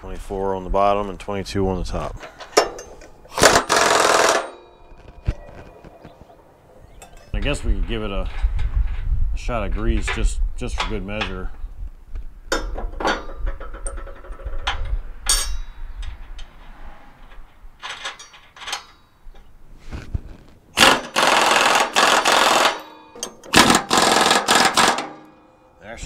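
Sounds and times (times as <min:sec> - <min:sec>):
impact wrench hammering: 0:02.6 - 0:04.8, 0:20.8 - 0:25.4.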